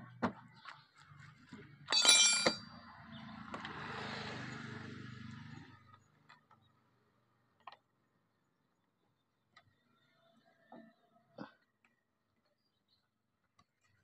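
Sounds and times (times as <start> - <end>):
metal tool clanking: 1.9 - 2.6.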